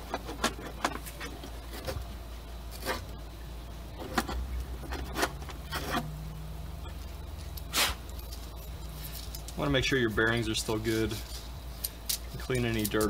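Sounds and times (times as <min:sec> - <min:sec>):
plastic parts clicking and scraping: 0:00.0 - 0:02.1, 0:02.7 - 0:03.1, 0:04.0 - 0:06.1
steady low rumble: 0:00.0 - 0:13.0.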